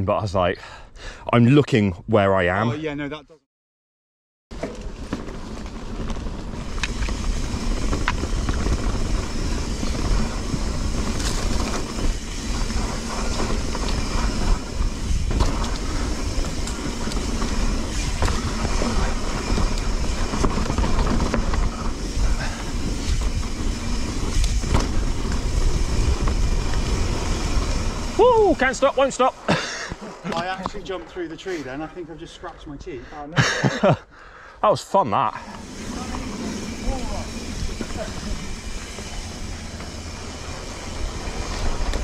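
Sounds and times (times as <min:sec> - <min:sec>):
bike knocks and rattles: 0:04.5 - 0:28.0
rumble of bike tyres: 0:04.5 - 0:32.8, 0:35.4 - 0:42.0.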